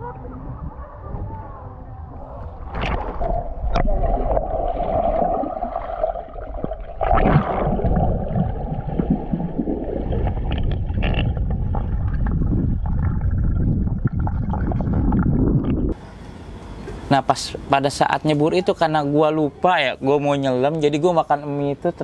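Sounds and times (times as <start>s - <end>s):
muffled underwater rumble: 0.0s - 16.1s
mid-pitched hum: 0.0s - 21.9s
water gurgling: 2.0s - 16.0s.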